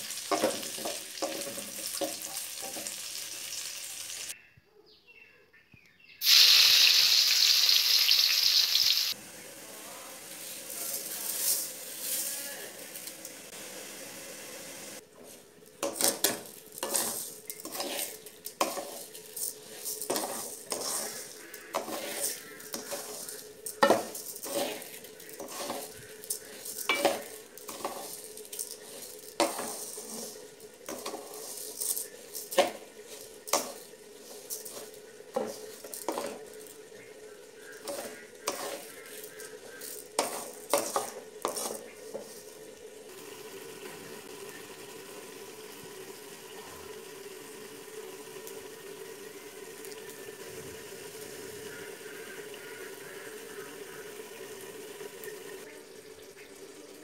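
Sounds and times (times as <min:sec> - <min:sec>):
light sizzle: 0:00.0 - 0:04.4, 0:06.2 - 0:57.0
pot bubbling: 0:00.0 - 0:04.4, 0:06.2 - 0:57.0
spatula scraping metal pan: 0:00.1 - 0:03.2, 0:15.2 - 0:42.7.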